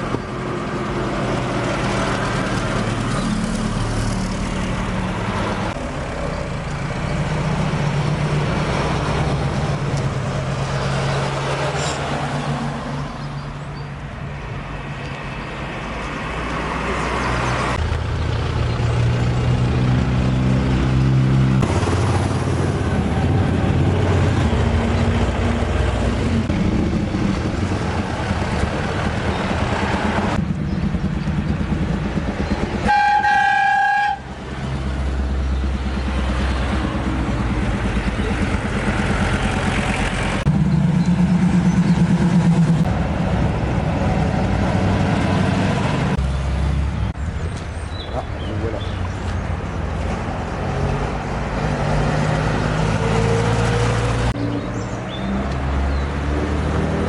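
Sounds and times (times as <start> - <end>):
car engines running: 34.4 - 57.0.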